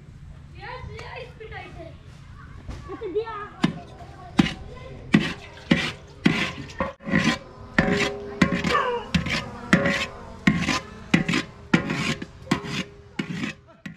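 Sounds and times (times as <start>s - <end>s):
metal ladle scraping pot: 3.6s - 13.9s.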